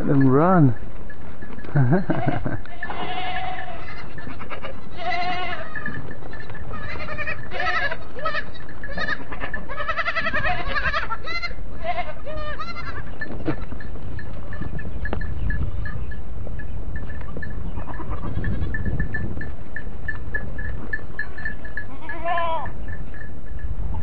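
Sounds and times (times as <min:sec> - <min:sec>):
goat kids bleating: 0:02.0 - 0:15.2, 0:17.7 - 0:18.9, 0:21.0 - 0:22.8.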